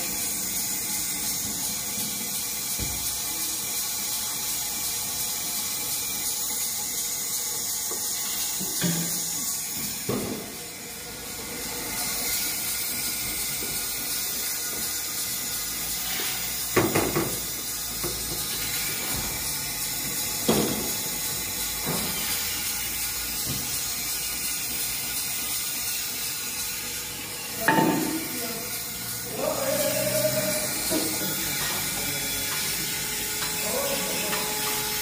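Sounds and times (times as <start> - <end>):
parts washer hissing: 0.0 - 35.0.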